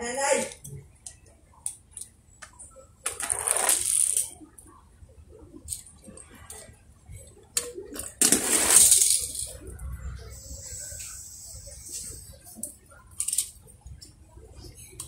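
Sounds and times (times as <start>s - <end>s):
toy cars rolling: 3.0s - 4.4s, 7.6s - 10.5s, 13.1s - 13.6s.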